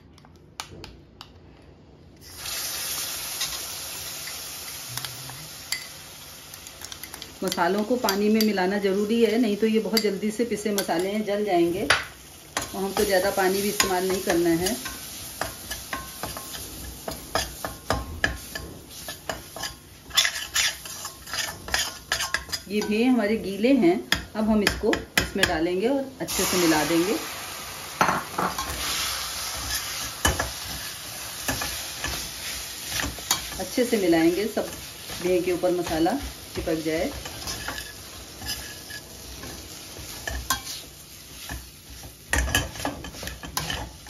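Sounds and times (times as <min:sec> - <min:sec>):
paste sizzling in hot oil: 0:02.2 - 0:22.7, 0:26.2 - 0:44.0
metal spatula scraping a pan: 0:12.6 - 0:23.0, 0:28.4 - 0:44.0.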